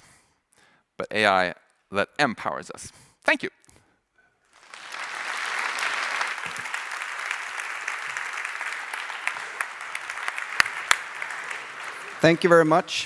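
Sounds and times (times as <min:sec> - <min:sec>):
audience applauding: 0:04.5 - 0:13.0.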